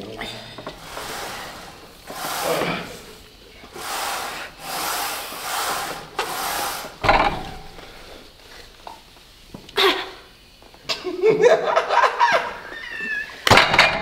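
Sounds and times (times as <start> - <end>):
person breathing hard: 0.2 - 7.0
exercise machine knock: 7.0 - 7.8.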